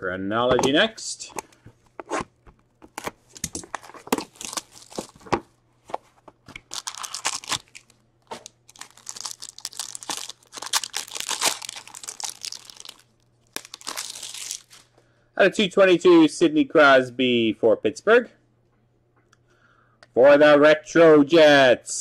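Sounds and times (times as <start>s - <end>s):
wrapper crinkling and tearing: 3.0s - 5.4s, 6.6s - 14.9s.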